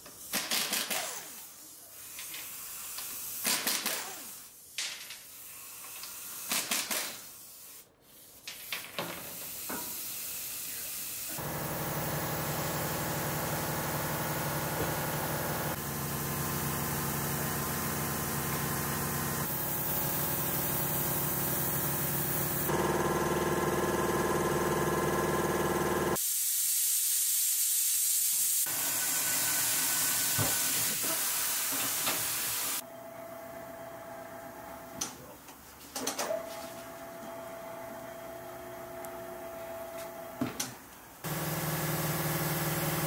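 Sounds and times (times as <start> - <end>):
machine running: 11.4 - 26.2, 41.3 - 43.0.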